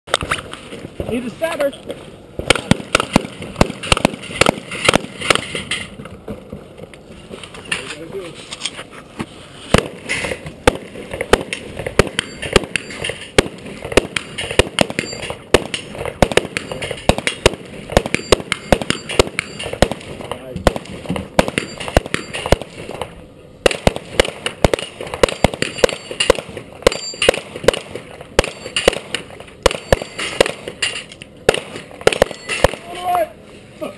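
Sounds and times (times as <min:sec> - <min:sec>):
gunshots: 0:02.4 - 0:05.7, 0:09.7 - 0:33.1.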